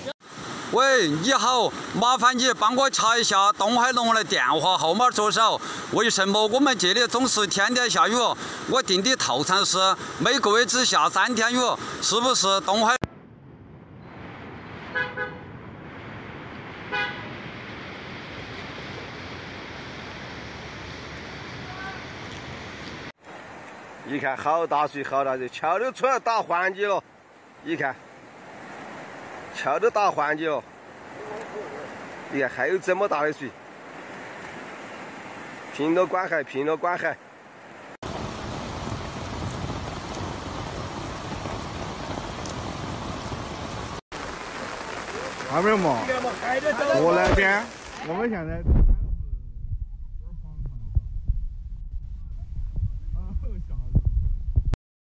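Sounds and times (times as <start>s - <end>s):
floodwater running across street: 0.0s - 13.0s, 14.2s - 48.4s
rain: 0.0s - 48.6s
vehicle horn tooting: 15.0s - 15.5s, 16.9s - 17.3s
steady rushing noise: 45.1s - 54.8s.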